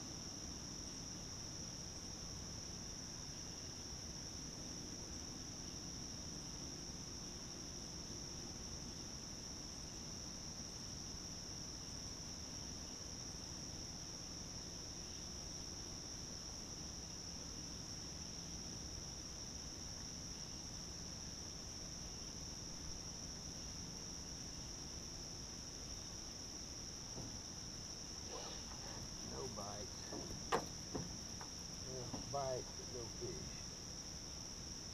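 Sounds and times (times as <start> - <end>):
insects droning: 0.0 - 34.9.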